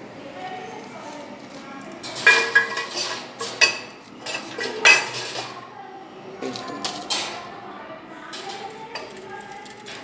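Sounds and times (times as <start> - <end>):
metal basket clinking and rattling: 2.0 - 5.5.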